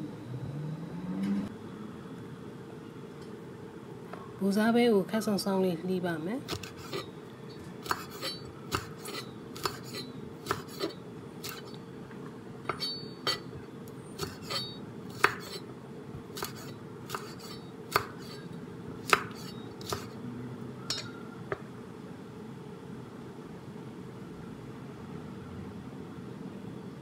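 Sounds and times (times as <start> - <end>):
faint steady hum: 0.0 - 27.0
knife striking cutting board: 7.8 - 11.7, 16.4 - 18.4.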